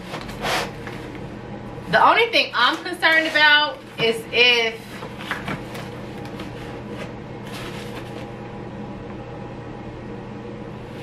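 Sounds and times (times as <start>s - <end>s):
steady low hum: 0.0s - 11.0s
cardboard and packing material rustling: 2.6s - 8.4s.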